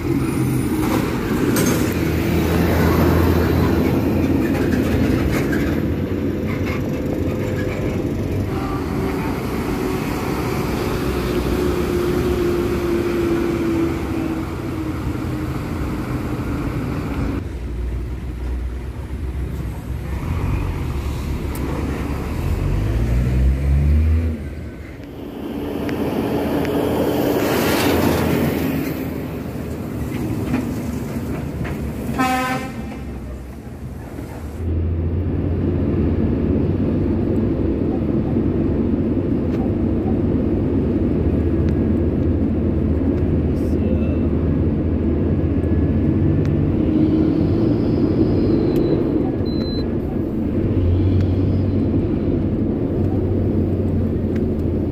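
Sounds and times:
engine revving: 0:20.1 - 0:24.6.

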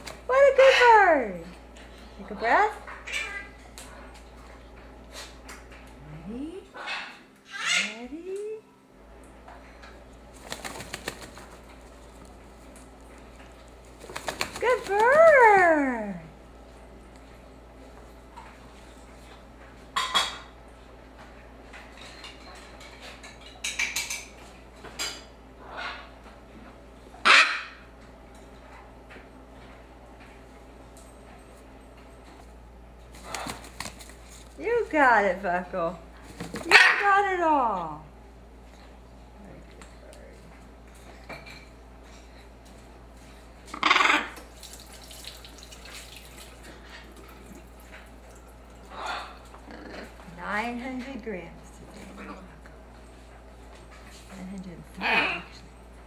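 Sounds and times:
parrot chick squawking: 0:06.8 - 0:08.1, 0:27.2 - 0:27.8
parrot chick harsh calls: 0:27.2 - 0:27.8.

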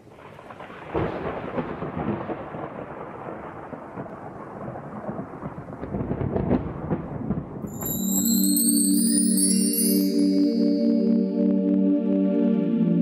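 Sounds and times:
crackling thunder rumble: 0:00.2 - 0:07.7
thunderclap: 0:00.4 - 0:07.6.

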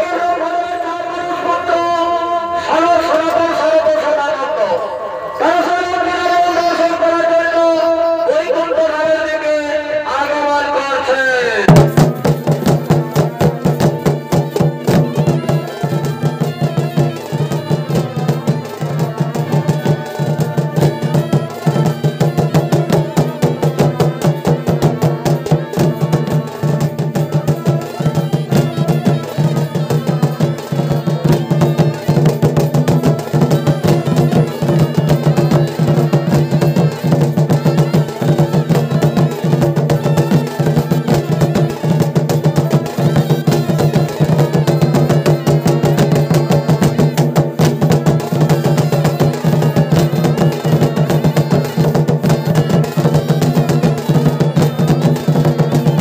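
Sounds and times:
fast dense drumming: 0:11.7 - 0:56.0.

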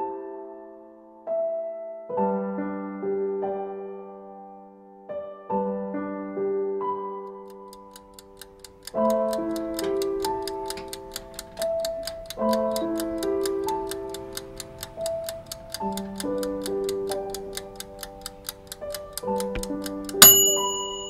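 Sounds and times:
piano-like music: 0:00.0 - 0:21.0
clock-like ticking: 0:07.4 - 0:21.0.

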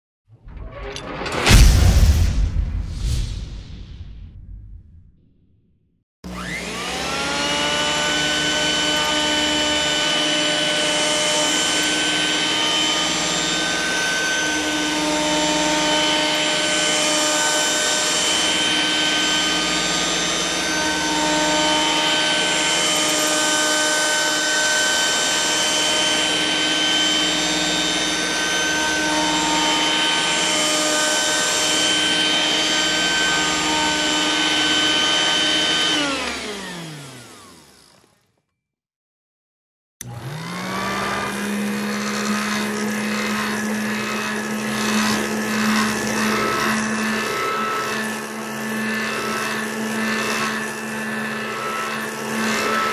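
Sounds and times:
vacuum cleaner running: 0:06.2 - 0:38.3, 0:40.0 - 0:52.9
motor winding down: 0:06.3 - 0:38.3, 0:40.0 - 0:52.9.

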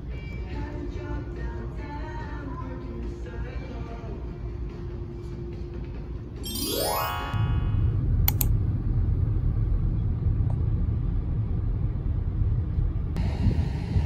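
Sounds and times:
quick clicks: 0:08.3 - 0:08.5
road rumble inside car: 0:09.1 - 0:13.6.

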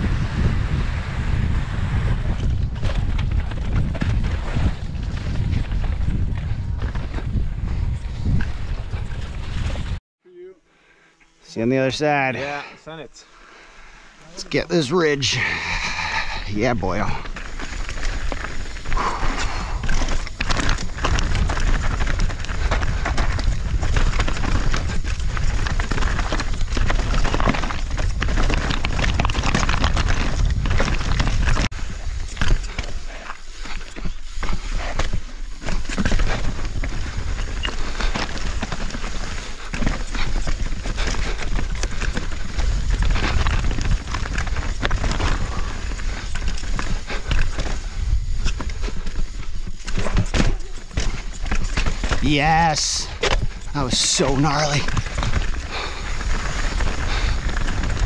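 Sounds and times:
bike tyres on rock and dirt: 0:00.0 - 0:10.0, 0:13.3 - 0:58.0
wind rumble on microphone: 0:00.0 - 0:10.0, 0:17.1 - 0:52.3, 0:54.8 - 0:58.0
knocks and rattles over bumps: 0:17.1 - 0:58.0.

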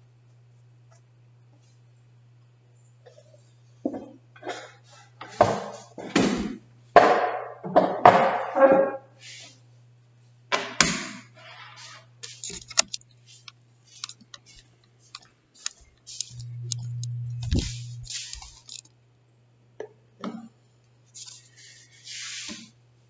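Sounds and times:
steady low hum: 0:12.0 - 0:19.8
laptop handling clicks and knocks: 0:12.4 - 0:14.6
rubbing against microphone: 0:15.8 - 0:18.8.

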